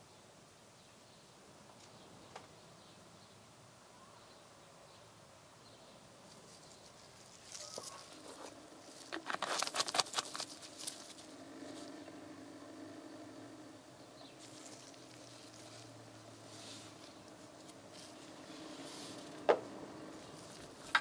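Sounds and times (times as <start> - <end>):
glove rubbing on plastic bottle: 7.9 - 11.2.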